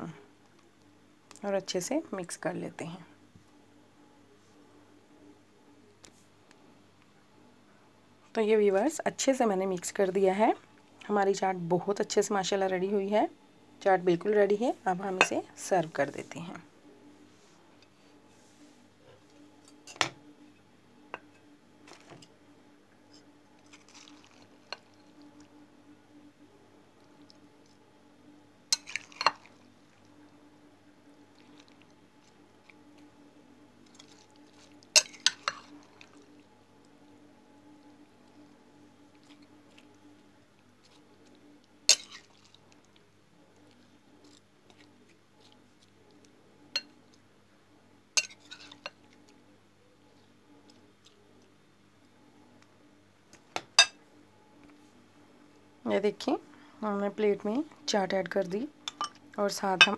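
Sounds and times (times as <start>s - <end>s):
metal spoon clinking on dishes: 58.9s - 59.2s.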